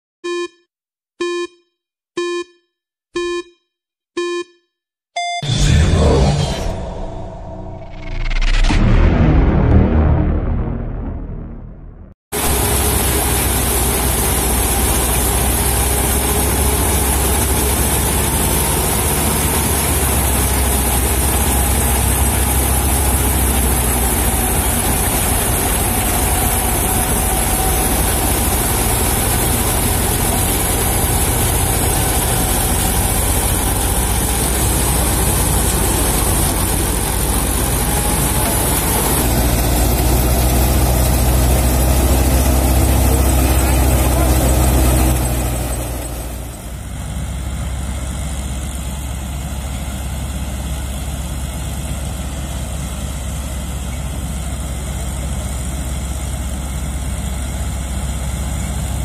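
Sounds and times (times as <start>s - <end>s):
tractor engine humming: 12.4s - 51.4s
harvester machinery hissing: 19.5s - 46.5s.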